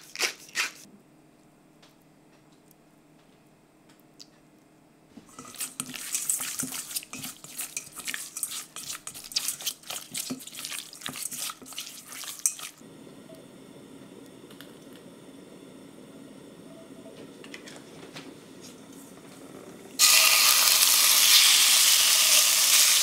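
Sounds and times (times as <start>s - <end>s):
spatula scraping metal bowl: 5.3s - 12.8s
wet squelching of stirred chicken: 5.3s - 12.8s.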